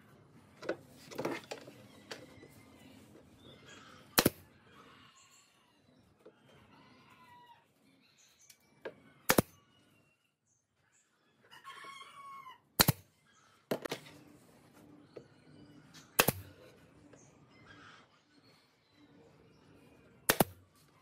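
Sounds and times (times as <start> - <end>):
nail gun firing: 4.2 - 4.4, 9.3 - 9.5, 12.8 - 13.0, 16.2 - 16.5, 20.3 - 20.6.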